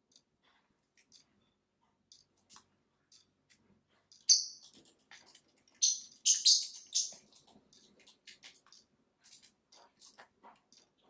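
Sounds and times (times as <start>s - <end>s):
lovebird chirping: 4.3s - 4.6s, 5.8s - 7.2s.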